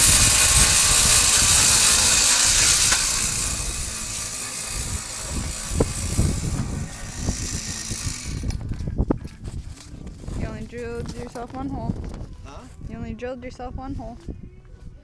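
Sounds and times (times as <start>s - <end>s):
ice auger engine running: 0.0s - 8.6s.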